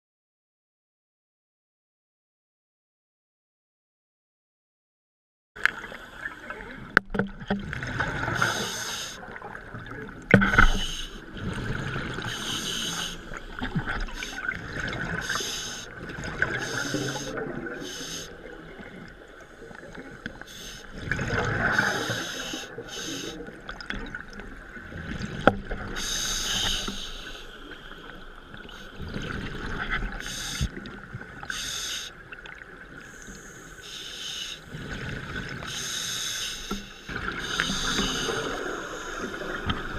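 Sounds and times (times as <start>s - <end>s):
diver breathing through regulator: 8.3s - 9.2s, 10.5s - 13.4s, 15.2s - 18.4s, 21.6s - 23.5s, 25.9s - 27.9s, 31.5s - 32.2s, 33.0s - 39.9s.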